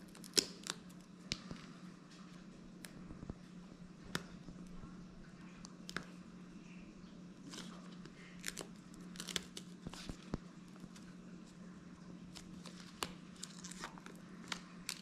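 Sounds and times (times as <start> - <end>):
plastic strip crinkling and peeling: 0.0 - 1.7, 7.4 - 11.2, 12.3 - 15.0.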